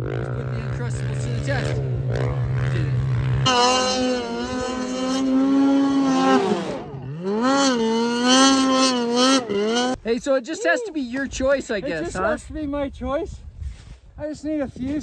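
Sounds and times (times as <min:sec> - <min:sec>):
snow bike engine running: 0:00.0 - 0:10.0
snowmobile engine revving: 0:00.0 - 0:10.0.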